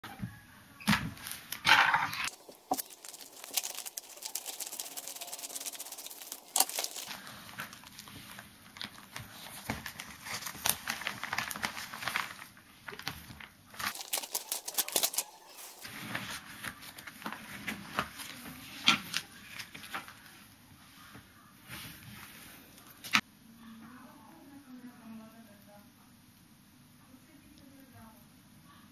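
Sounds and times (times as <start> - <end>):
paper tearing: 2.2 - 8.0, 9.3 - 12.5, 13.8 - 16.3
paper crinkling and rustling: 2.2 - 20.3.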